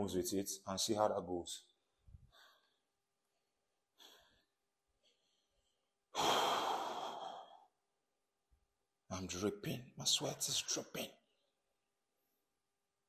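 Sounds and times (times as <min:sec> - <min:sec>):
person breathing hard: 0:02.2 - 0:02.9, 0:03.9 - 0:07.7
long loud sigh: 0:06.1 - 0:07.6.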